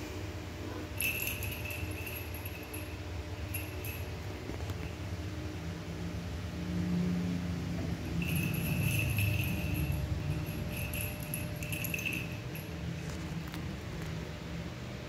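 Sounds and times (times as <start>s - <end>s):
cat collar bell jingling: 1.0s - 5.1s, 8.0s - 13.3s.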